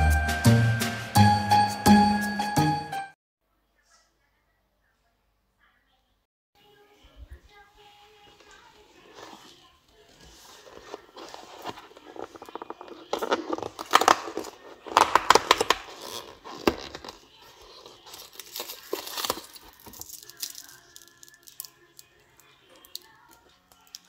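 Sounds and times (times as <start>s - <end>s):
foil wrapper crinkling: 8.4s - 24.0s
cardboard tearing: 10.3s - 20.8s.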